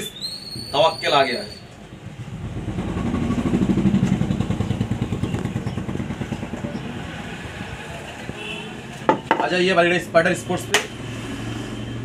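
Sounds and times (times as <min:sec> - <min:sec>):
vehicle engine pulsing: 0:01.8 - 0:08.2.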